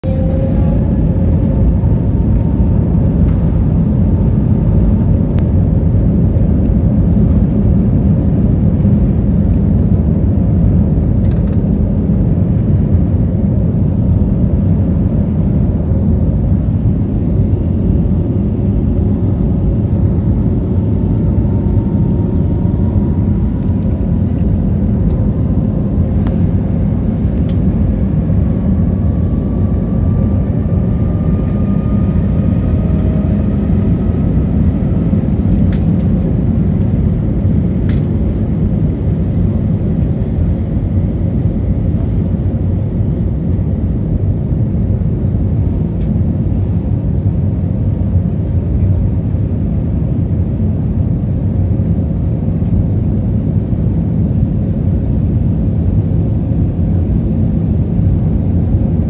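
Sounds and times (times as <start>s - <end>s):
faint rising whine: 0.0s - 42.9s
jet engines rumbling: 0.0s - 59.0s.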